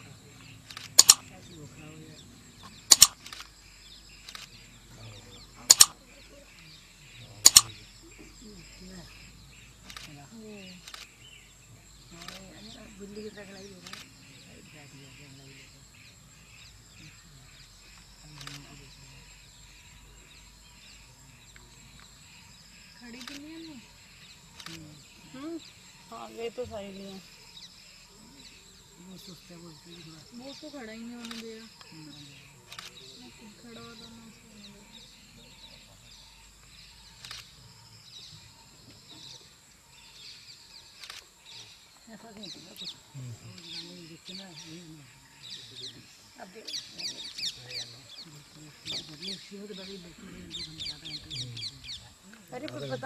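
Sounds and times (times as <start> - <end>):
bird chirps: 0.0 - 53.0
insect drone: 0.0 - 53.0
sharp clicks: 0.6 - 1.4, 2.6 - 4.6, 5.7 - 6.0, 7.4 - 7.8, 9.8 - 10.1, 10.8 - 11.2, 13.8 - 14.1, 18.3 - 18.8, 23.0 - 23.7, 24.6 - 24.9, 31.1 - 31.9, 32.7 - 33.0, 36.6 - 37.5, 40.9 - 41.7
sharp click: 0.7 - 1.3, 2.6 - 3.5, 5.7 - 6.0, 7.4 - 7.8.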